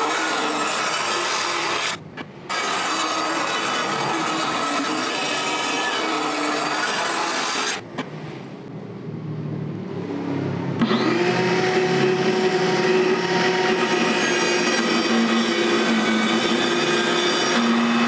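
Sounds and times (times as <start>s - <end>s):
circular saw cutting wood: 0.0s - 7.8s, 10.8s - 18.0s.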